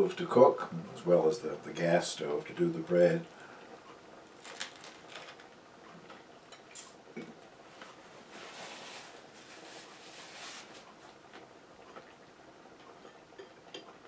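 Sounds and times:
person eating bread: 4.3 - 5.5.

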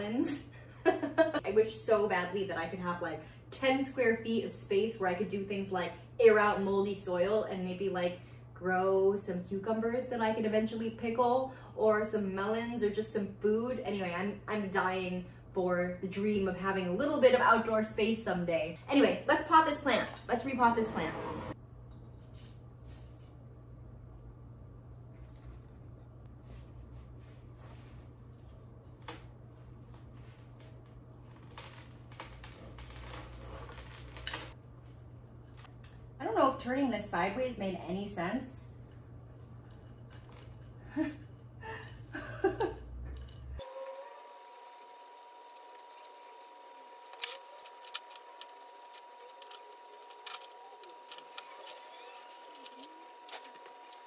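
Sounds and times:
pot scraping on table: 20.5 - 21.6.

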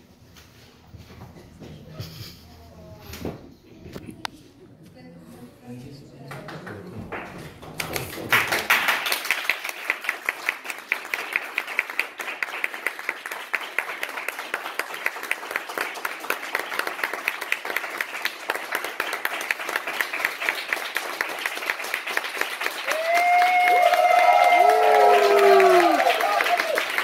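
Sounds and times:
audience applauding: 6.5 - 27.0.

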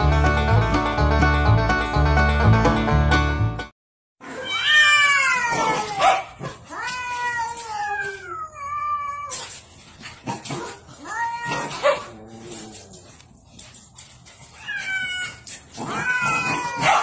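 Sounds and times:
cats yowling: 4.2 - 9.5, 10.9 - 13.2, 14.4 - 17.0.

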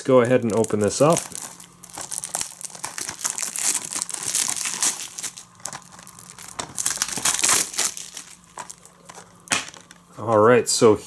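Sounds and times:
plastic shrink wrap crinkling: 0.0 - 10.4.

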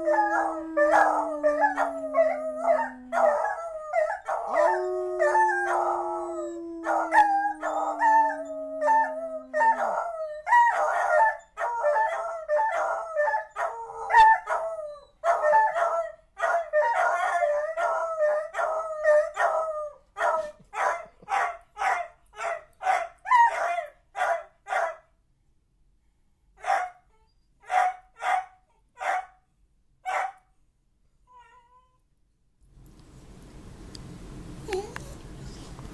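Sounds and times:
dog baying: 0.0 - 11.2
dogs howling: 0.0 - 20.0.

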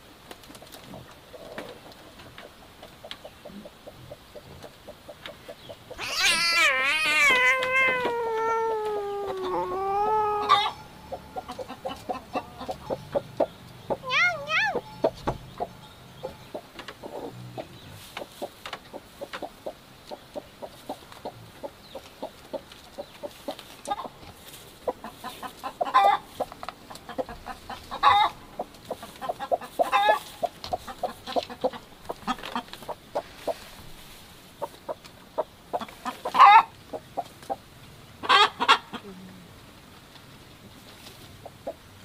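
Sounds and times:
hens clucking: 0.4 - 39.1, 41.0 - 41.9
hen squawking: 5.9 - 13.2.

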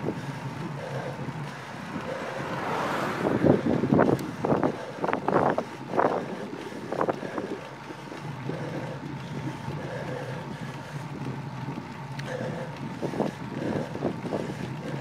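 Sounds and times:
wind rushing over microphone: 1.2 - 7.7.

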